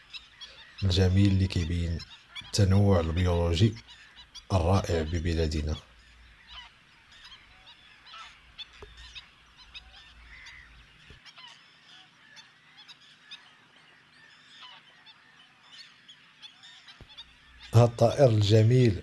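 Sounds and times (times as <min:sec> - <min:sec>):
bird short sharp calls: 0:00.0 - 0:19.0.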